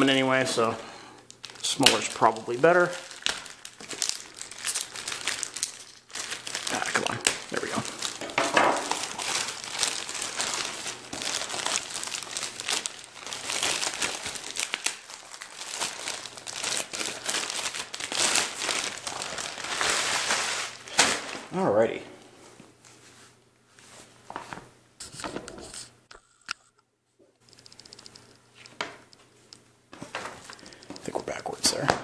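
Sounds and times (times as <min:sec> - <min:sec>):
plastic bag crinkling: 0:00.0 - 0:21.5, 0:30.0 - 0:31.4.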